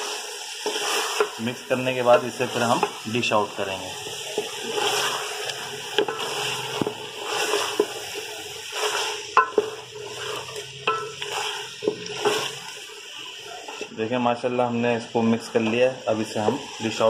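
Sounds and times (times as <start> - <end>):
curry sizzling: 0.0 - 17.0
wooden spoon scraping pot: 4.3 - 12.7.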